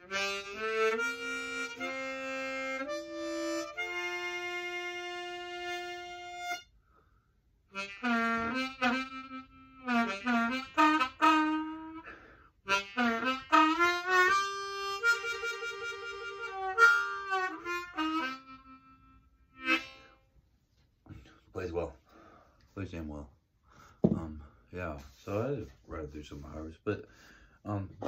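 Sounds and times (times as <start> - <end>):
harmonica playing bent notes: 0.0 - 20.4.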